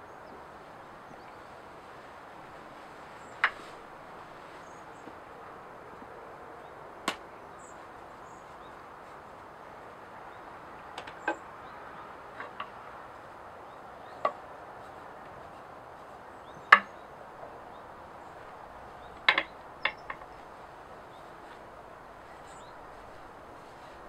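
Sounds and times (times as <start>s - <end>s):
axes knocking on wooden log: 16.7s - 17.0s, 19.2s - 20.4s.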